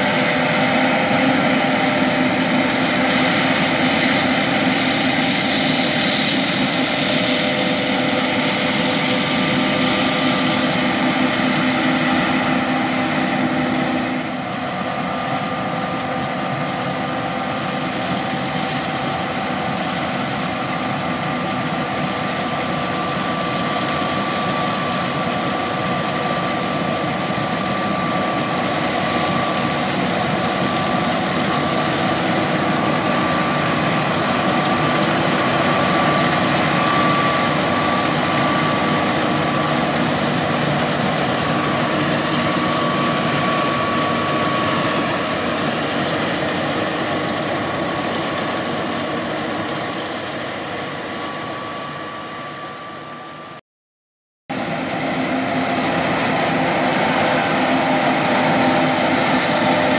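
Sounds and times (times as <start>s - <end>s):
combine harvester engine drone: 0.0s - 53.6s, 54.5s - 59.9s
high machinery whine: 0.0s - 53.6s, 54.5s - 59.9s.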